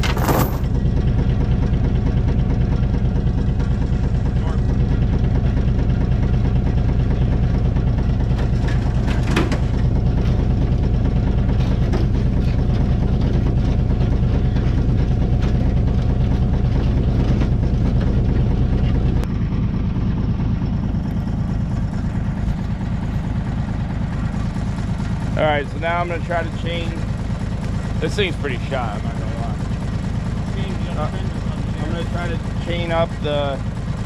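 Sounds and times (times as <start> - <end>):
sharp clanks: 0.0 - 0.8
engine idling: 0.0 - 34.0.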